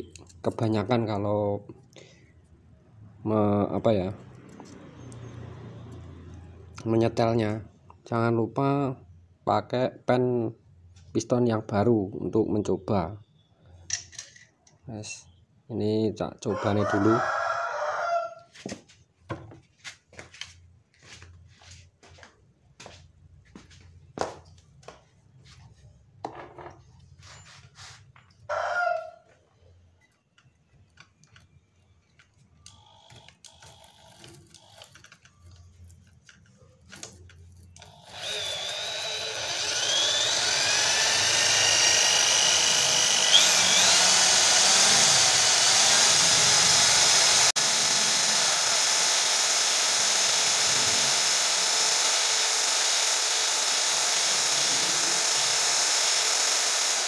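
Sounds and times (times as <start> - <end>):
small clicks and knocks: 30.0 - 37.9
electric drill running: 32.7 - 35.1, 37.8 - 57.0.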